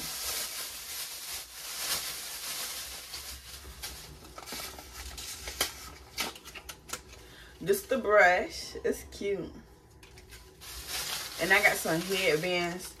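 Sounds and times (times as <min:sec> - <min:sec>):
packaging rustling and crinkling: 0:00.0 - 0:07.2, 0:10.0 - 0:13.0.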